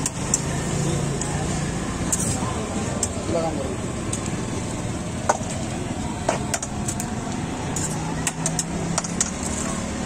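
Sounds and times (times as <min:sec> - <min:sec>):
metal utensils on steel griddle: 0:00.0 - 0:04.2, 0:05.2 - 0:10.0
steady background noise: 0:00.0 - 0:10.0.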